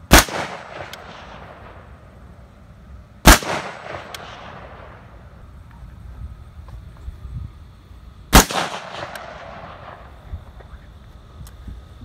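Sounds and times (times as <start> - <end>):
rifle shot with echo: 0.1 - 1.9, 3.2 - 5.2, 8.3 - 10.1.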